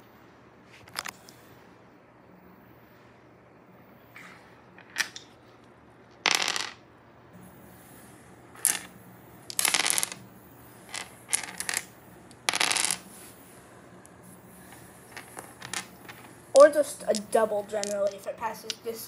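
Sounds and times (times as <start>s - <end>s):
dice clattering on wood: 4.8s - 5.4s, 6.1s - 6.8s, 8.6s - 8.9s, 9.5s - 10.2s, 10.9s - 13.1s, 14.7s - 18.9s.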